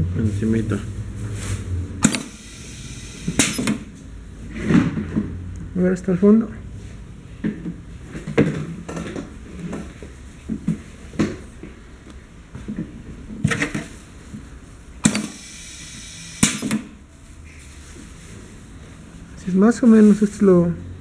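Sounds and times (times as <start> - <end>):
machine click: 2.0 - 2.4
filler hissing: 2.2 - 3.6, 15.1 - 16.8.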